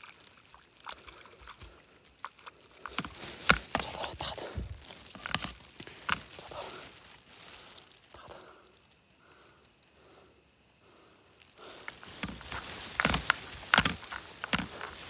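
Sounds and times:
footsteps through wet grass and water: 0:00.0 - 0:08.2, 0:11.6 - 0:15.0
faint insect chirring: 0:00.0 - 0:15.0.

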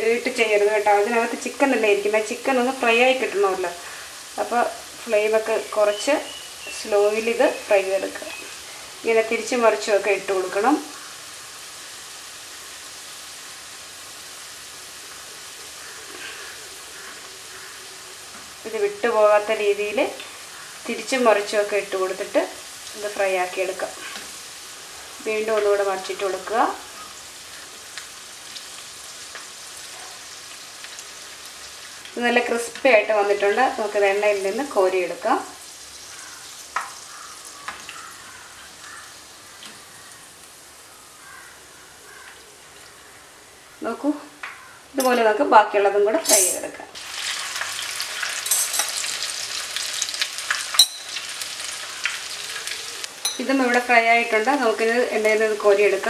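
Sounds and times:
food sizzling in hot oil: 0:00.0 - 0:56.0
spoon knocking against pan: 0:50.8 - 0:51.1, 0:53.2 - 0:53.5.

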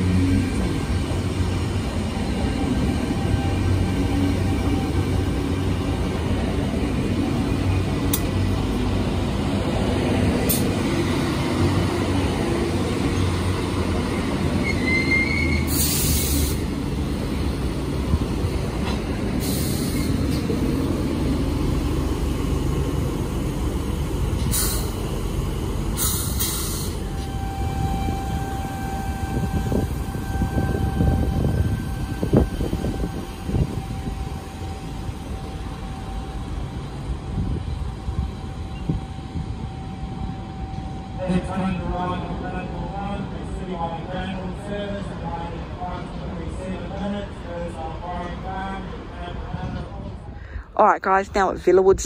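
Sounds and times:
train wheels rumbling on track: 0:00.0 - 0:52.0
brief rising squeal: 0:14.6 - 0:16.4.

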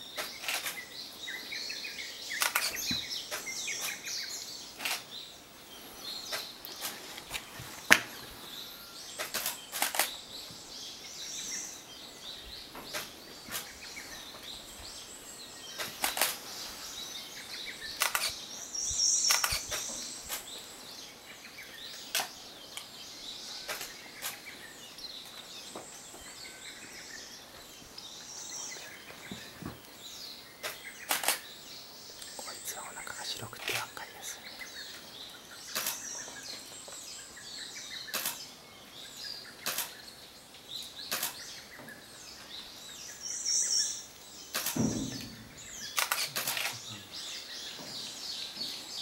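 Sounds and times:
thin high bird calls: 0:17.7 - 0:20.5.

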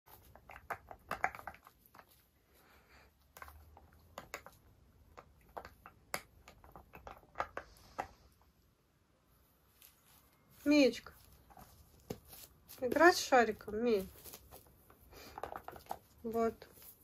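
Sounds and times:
puppy teeth clicking on rubber: 0:00.1 - 0:02.2, 0:03.3 - 0:08.2.

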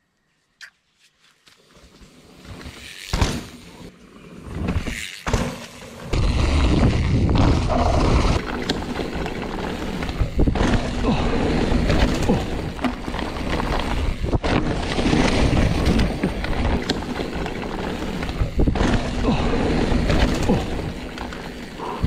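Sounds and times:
tyres rolling on dirt trail: 0:01.5 - 0:22.0
bike knocking and rattling: 0:01.9 - 0:03.8, 0:04.4 - 0:22.0.

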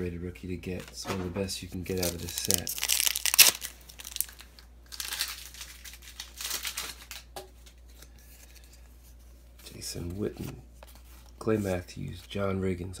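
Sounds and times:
foil wrapper crinkling and tearing: 0:01.9 - 0:07.8.

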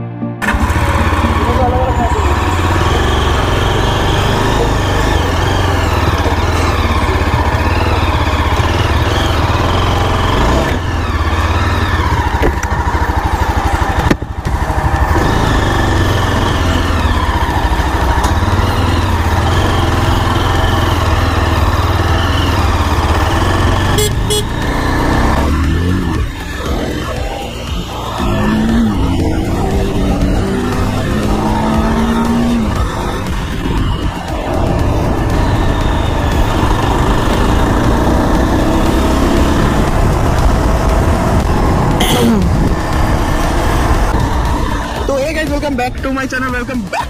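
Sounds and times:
motorcycle engine running: 0:00.4 - 0:47.0.

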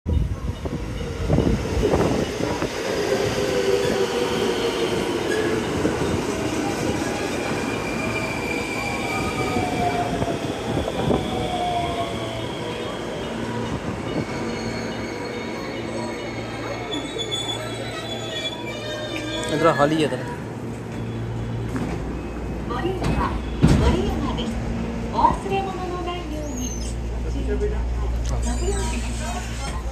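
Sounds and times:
train brakes squealing: 0:00.1 - 0:19.9, 0:26.3 - 0:27.1, 0:28.4 - 0:29.9.

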